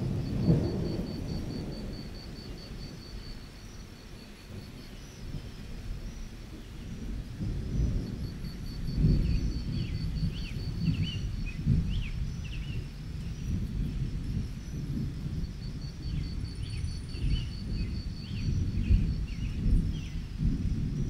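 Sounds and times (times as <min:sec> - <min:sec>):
thunder rolling: 0:00.0 - 0:03.2, 0:06.5 - 0:21.0
crickets chirping: 0:00.0 - 0:21.0.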